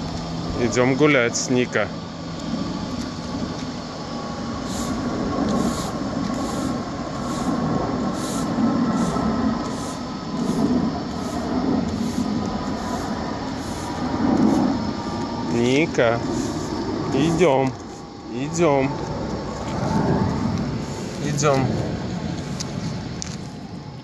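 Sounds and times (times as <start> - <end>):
faint steady hum: 0.0 - 24.0
push broom scraping paving stones: 4.6 - 23.6.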